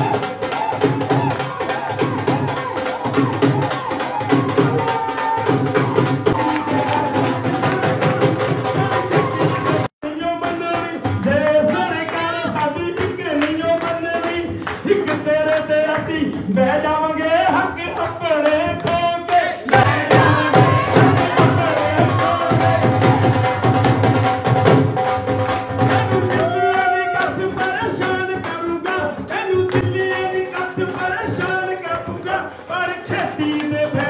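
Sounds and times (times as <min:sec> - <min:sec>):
fast drum beat: 0:00.0 - 0:32.4
man singing into a microphone: 0:10.0 - 0:23.6, 0:26.0 - 0:34.0.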